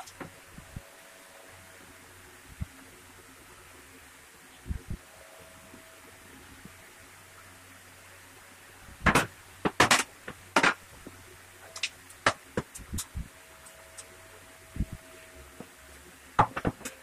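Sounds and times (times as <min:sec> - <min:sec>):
wood pieces knocking on workbench: 0:16.4 - 0:16.9.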